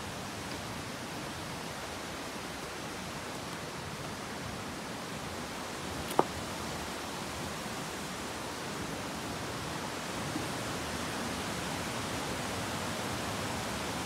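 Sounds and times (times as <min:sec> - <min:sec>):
steady outdoor hiss: 0:00.0 - 0:14.0
sharp click or knock: 0:06.1 - 0:06.4.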